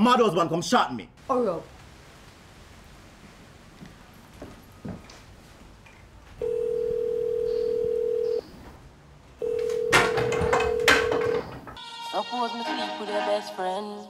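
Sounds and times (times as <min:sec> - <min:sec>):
telephone ringing tone: 0:06.4 - 0:08.5, 0:09.4 - 0:11.5
handling knocks: 0:09.7 - 0:11.8.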